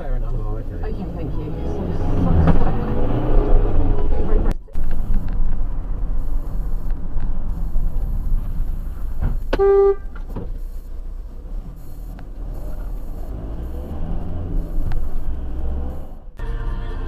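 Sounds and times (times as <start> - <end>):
car engine and road noise: 0.0 - 17.0
car horn blast: 9.5 - 10.2, 16.4 - 17.0.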